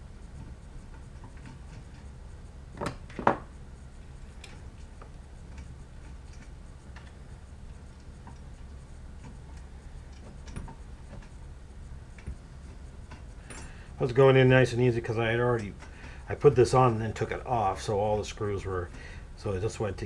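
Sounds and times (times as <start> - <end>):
low steady hum: 0.0 - 20.0
metal parts clicking and tapping: 4.3 - 11.4, 12.1 - 16.7.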